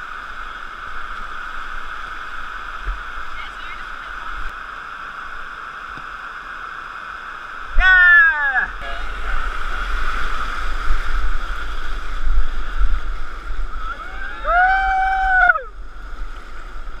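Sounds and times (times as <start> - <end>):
whitewater rushing: 0.0 - 17.0
wind on microphone: 8.6 - 17.0.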